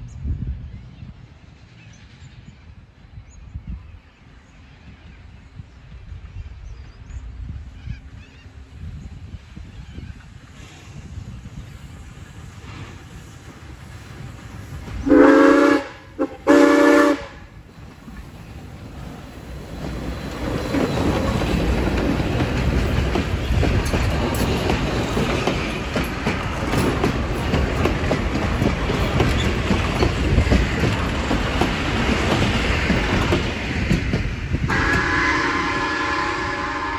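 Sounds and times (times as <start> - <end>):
train wheels on rails: 1.1 - 36.9
steam whistle blasts: 15.0 - 17.5, 34.7 - 36.9.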